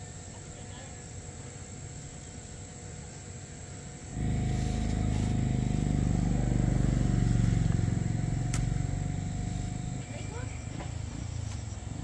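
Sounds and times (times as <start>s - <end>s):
small engine humming: 4.1s - 12.0s.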